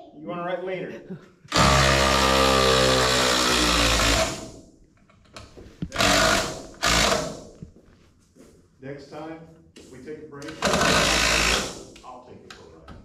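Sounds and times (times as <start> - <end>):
cordless drill driving screw into wood: 1.5 - 4.5, 5.9 - 7.5, 10.4 - 12.0.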